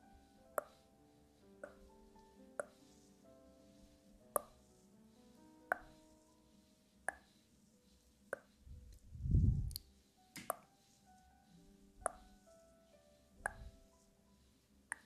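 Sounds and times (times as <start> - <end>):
faint background music: 0.0 - 15.0
soft sharp pops: 4.3 - 4.6, 5.7 - 6.0, 13.4 - 13.8.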